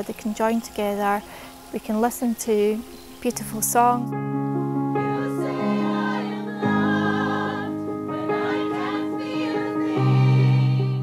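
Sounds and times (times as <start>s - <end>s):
women's choir singing: 4.9s - 11.0s.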